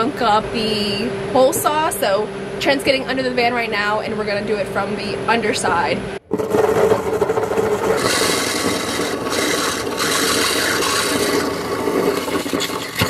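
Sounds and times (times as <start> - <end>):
power drill with hole saw grinding: 6.4 - 13.0.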